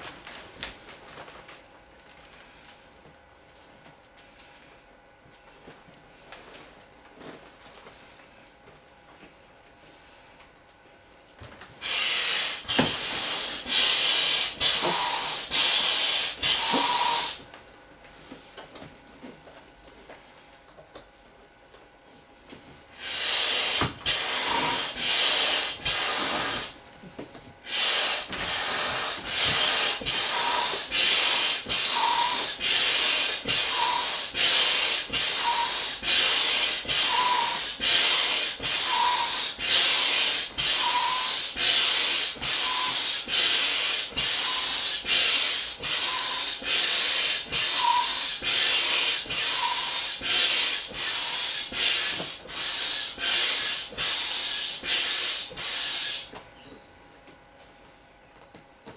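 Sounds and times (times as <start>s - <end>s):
hand air pump strokes: 11.8s - 17.4s, 23.0s - 26.8s, 27.6s - 56.4s
pump squeak: 27.7s - 43.6s, 44.2s - 54.2s.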